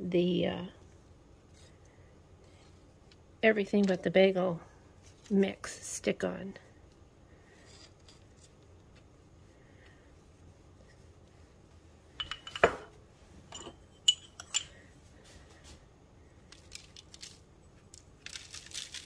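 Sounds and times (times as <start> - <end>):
utensils clinking: 12.2 - 12.9, 13.5 - 14.8.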